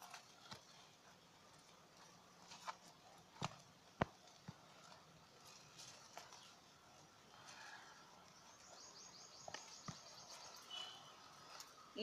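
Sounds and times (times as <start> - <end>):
high bird chirping: 8.4 - 11.2.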